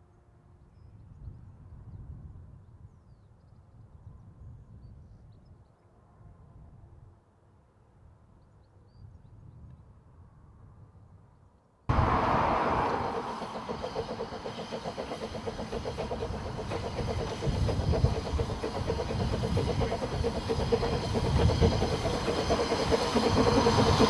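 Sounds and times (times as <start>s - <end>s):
steam hissing: 11.9s - 24.0s
steam locomotive exhaust beat: 11.9s - 24.0s
wheels rumbling on rail: 11.9s - 24.0s.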